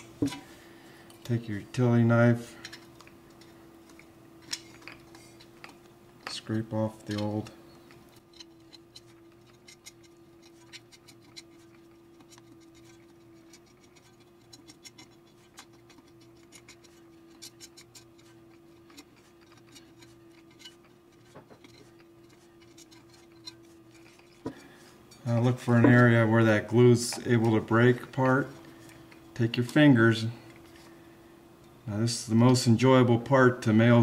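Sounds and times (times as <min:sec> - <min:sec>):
faint steady hum: 0:00.0 - 0:34.0
knife blade scraping foam and glue: 0:08.2 - 0:24.6.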